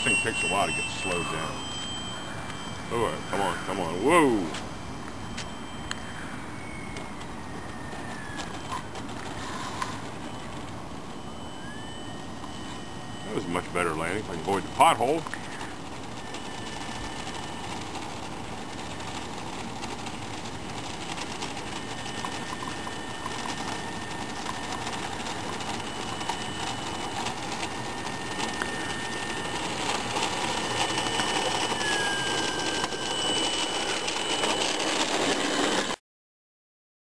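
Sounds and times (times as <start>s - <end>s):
electric motor and propeller whine: 0.0s - 36.0s.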